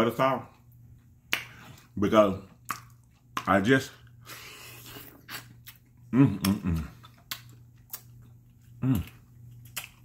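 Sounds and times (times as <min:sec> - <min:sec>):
steady low hum: 0:00.0 - 0:10.0
lip smacks and mouth clicks: 0:00.6 - 0:03.7, 0:04.8 - 0:10.0
person murmuring: 0:06.1 - 0:07.0, 0:08.8 - 0:09.1.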